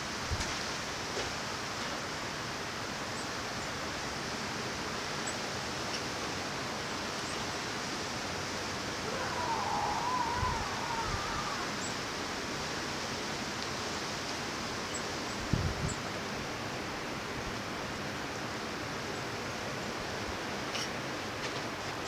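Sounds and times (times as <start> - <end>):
wind hiss: 6.6 - 16.8
low wind buffets: 8.9 - 12.2.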